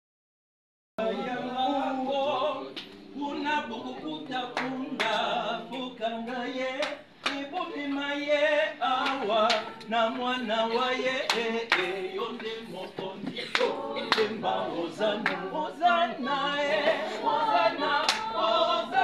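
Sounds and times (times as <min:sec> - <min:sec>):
choir singing: 0:01.0 - 0:19.0
hand claps: 0:04.5 - 0:08.1, 0:09.0 - 0:09.9, 0:11.2 - 0:14.4, 0:15.2 - 0:15.5, 0:18.0 - 0:18.3.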